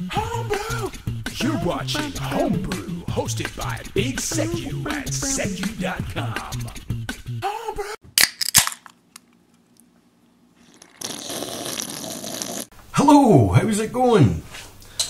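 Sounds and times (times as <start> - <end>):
sharp cracks: 8.2 - 9.3.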